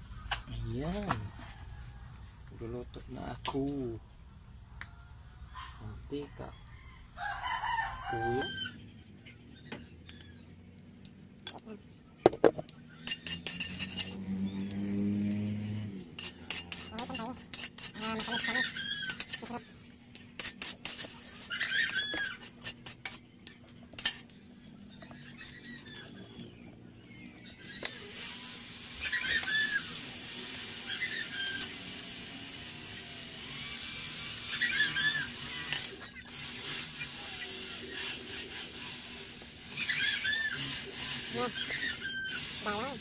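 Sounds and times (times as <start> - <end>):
oil sizzling: 12.3 - 19.6, 27.2 - 43.0
metal ladle scraping a wok: 13.0 - 19.6, 20.2 - 23.2, 23.9 - 24.4, 27.8 - 43.0.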